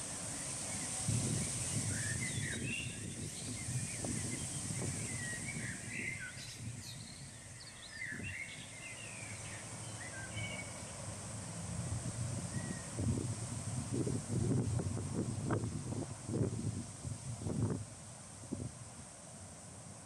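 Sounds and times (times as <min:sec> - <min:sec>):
wind rumble on microphone: 0:00.0 - 0:19.1
steady high-pitched hiss: 0:00.0 - 0:20.0
small songbirds chirping: 0:00.2 - 0:11.1.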